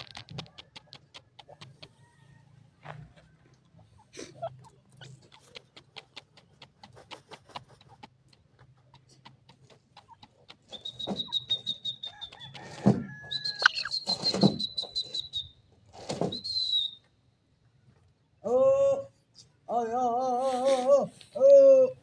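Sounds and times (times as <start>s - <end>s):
birds scratching in sand: 0.0s - 16.7s
high whistling bird call: 10.7s - 15.6s, 16.2s - 17.1s.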